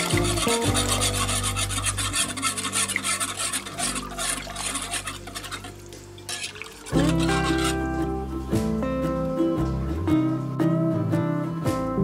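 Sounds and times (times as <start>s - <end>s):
wire whisk stirring soup: 0.0s - 7.9s
acoustic guitar music: 0.0s - 12.0s.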